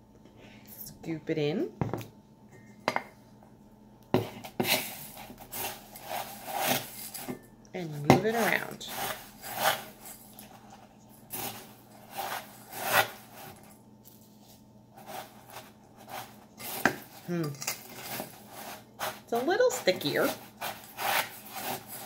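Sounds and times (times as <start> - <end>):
wooden spoon scraping metal bowl: 4.5 - 7.4, 8.2 - 13.7, 15.0 - 22.0.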